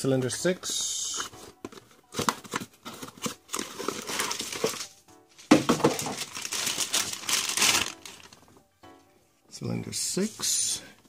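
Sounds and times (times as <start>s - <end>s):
tools rustling and knocking: 5.4s - 6.4s.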